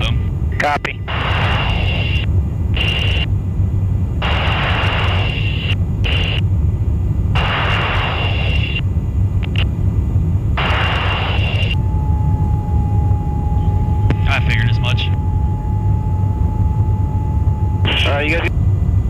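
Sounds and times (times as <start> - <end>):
aircraft low rumble: 0.0 - 19.0
bursts of hiss with whine: 1.1 - 3.3, 4.2 - 6.4, 7.4 - 8.8, 10.6 - 12.6.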